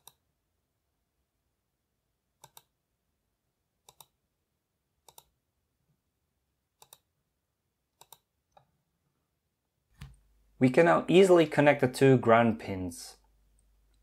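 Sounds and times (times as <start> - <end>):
mouse button clicking: 8.0 - 8.3.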